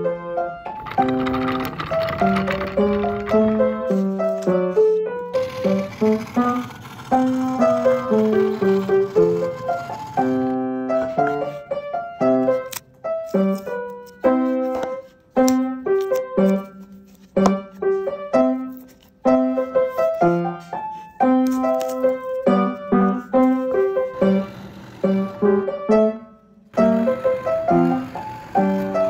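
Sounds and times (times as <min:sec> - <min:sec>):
piano melody: 0:00.0 - 0:29.0.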